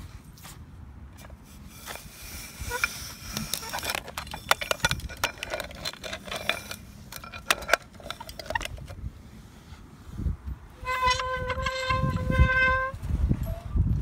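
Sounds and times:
plastic toys clicking and clinking: 2.7 - 9.0.

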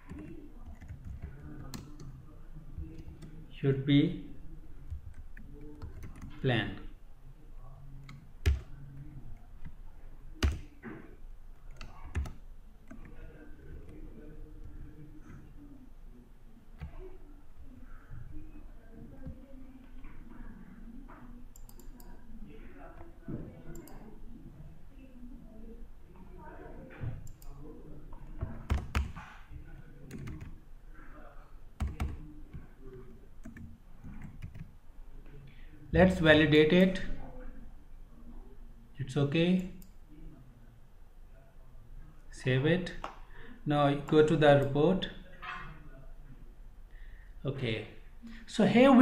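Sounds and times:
computer keyboard keystrokes: 10.4 - 10.6, 28.6 - 29.2, 30.1 - 30.5.

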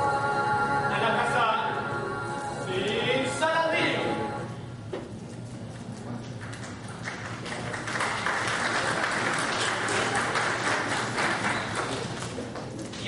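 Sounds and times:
audience applauding: 6.4 - 12.8.

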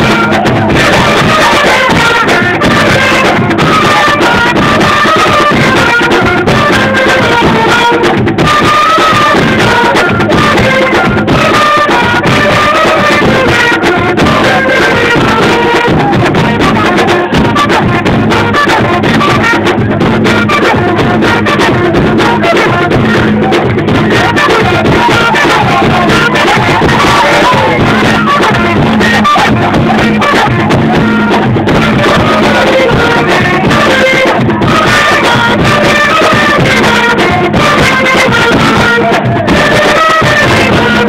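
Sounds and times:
drums: 0.0 - 41.0
trumpets playing melody: 0.0 - 41.0.

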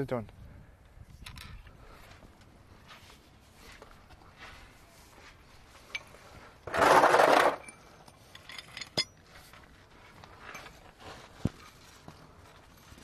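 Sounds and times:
loud scrape: 6.6 - 7.6
metallic clinks of hand tools: 7.6 - 9.2.

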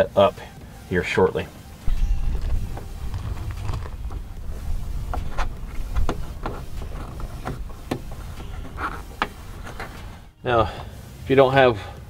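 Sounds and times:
low steady rumble: 1.8 - 10.4.

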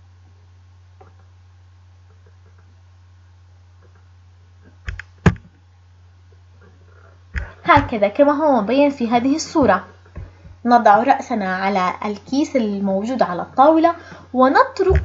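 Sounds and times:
low electrical hum: 0.0 - 15.0
computer mouse clicks: 4.9 - 5.5.

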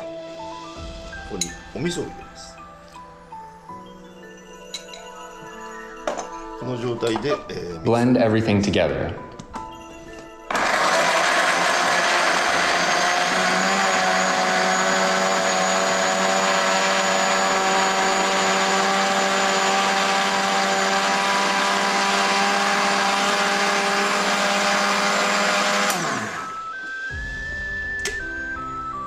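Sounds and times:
blender motor whine: 10.5 - 28.3.

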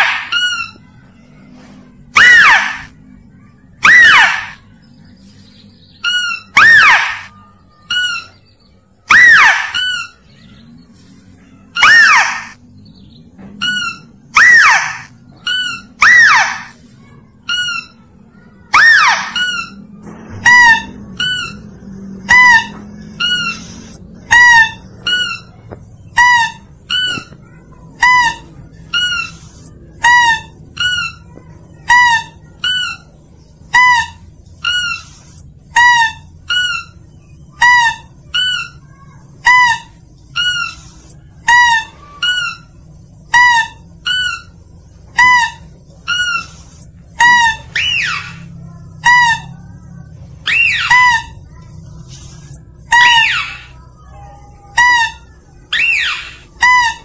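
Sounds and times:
short high squeaky calls: 0.0 - 4.7, 6.0 - 12.6, 13.6 - 57.0
falling whistle: 2.2 - 2.9, 3.8 - 4.6, 6.1 - 8.4, 9.1 - 10.2, 11.8 - 12.6, 13.6 - 16.8, 18.7 - 21.6, 54.7 - 57.0.

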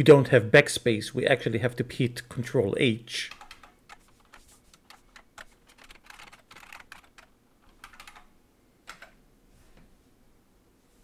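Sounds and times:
typing on computer keyboard: 3.3 - 8.3, 8.9 - 9.2.

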